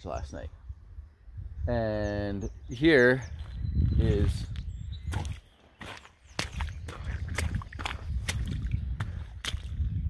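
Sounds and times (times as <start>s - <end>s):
footsteps in wet mud and water: 3.4s - 10.0s.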